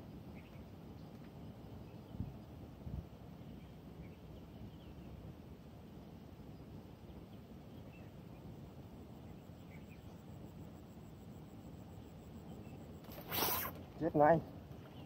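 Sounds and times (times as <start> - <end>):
faint bird chirps: 6.5 - 13.8.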